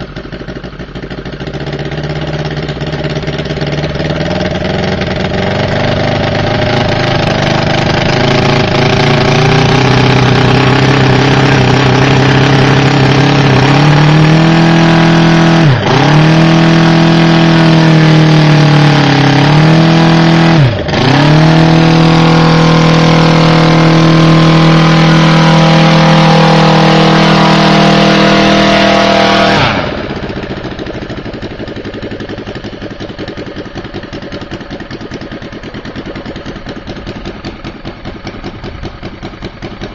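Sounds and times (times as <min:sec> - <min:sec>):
model aircraft engine running: 0:00.0 - 0:39.9.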